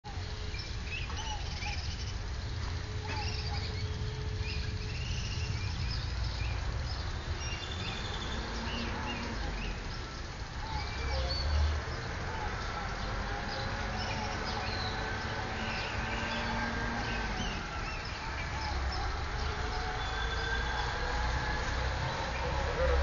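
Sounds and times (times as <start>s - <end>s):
small birds chirping: 0.1s - 23.0s.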